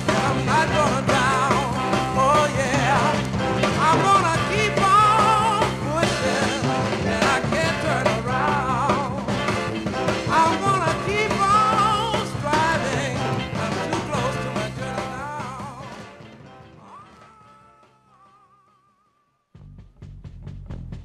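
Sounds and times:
soul singer with vibrato voice: 0.0 - 9.4, 10.2 - 16.0
full band playing: 0.0 - 18.3.

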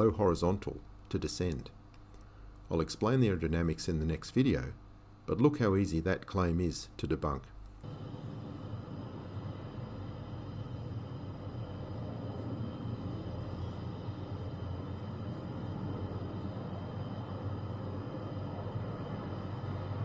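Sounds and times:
faint high whine: 0.0 - 20.0
jet engine rumble: 7.8 - 20.0.

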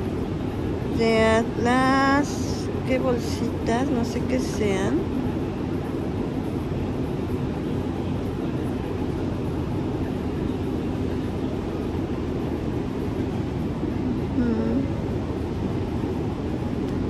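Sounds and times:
low rumbling background noise: 0.0 - 17.0
person humming: 14.4 - 15.0.

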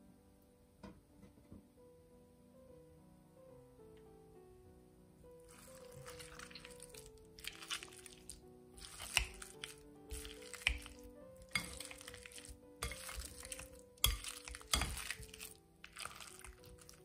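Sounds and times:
soft background music: 0.0 - 17.0
potato masher mashing squash: 5.6 - 17.0.

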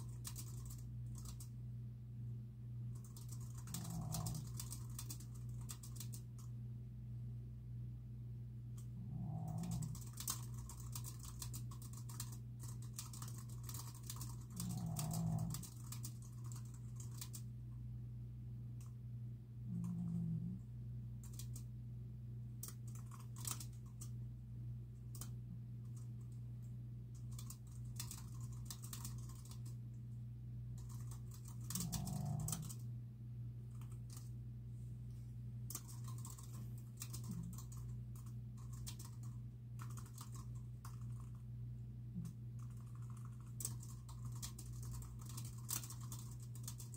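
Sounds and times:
typing on computer keyboard: 0.0 - 1.5, 2.9 - 6.5, 8.8 - 17.5, 21.2 - 21.7, 22.6 - 24.2, 25.1 - 26.3, 27.1 - 29.8, 30.8 - 32.8, 33.7 - 34.3, 35.7 - 41.4, 42.2 - 46.9
steady low hum: 0.0 - 46.9.

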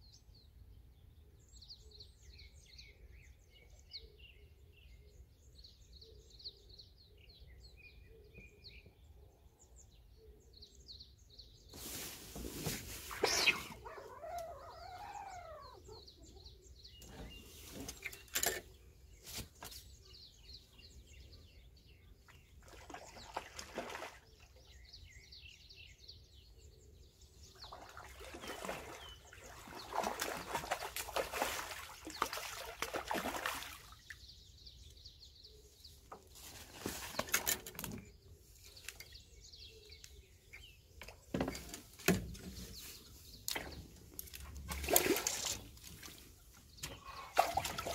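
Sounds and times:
fish splashing in water: 27.7 - 34.0, 44.5 - 46.2, 47.3 - 47.9.

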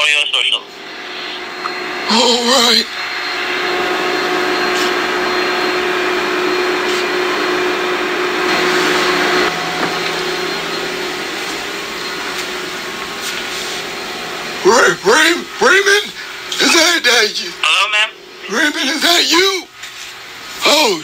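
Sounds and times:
machine whirring and humming: 0.0 - 21.0.

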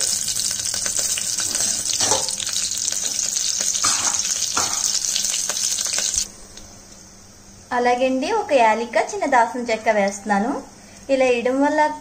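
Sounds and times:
chillies sizzling in hot oil: 0.0 - 6.8.

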